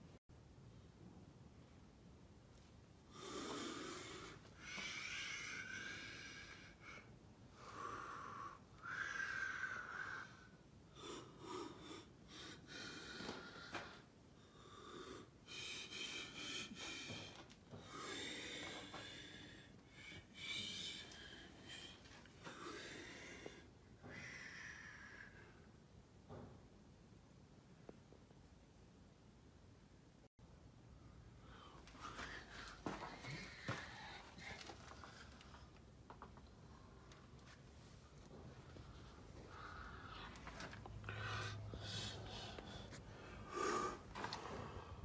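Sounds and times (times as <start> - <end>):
person breathing wheezily: 3.1 - 25.7, 38.8 - 45.0.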